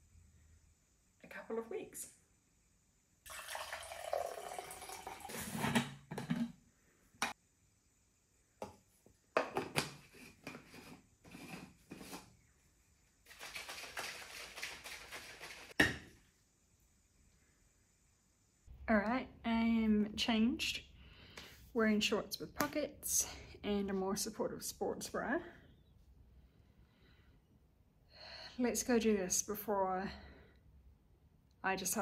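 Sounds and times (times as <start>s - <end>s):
liquid pouring into bottle: 3.3s - 5.6s
shaker bottle shaking: 13.2s - 15.8s.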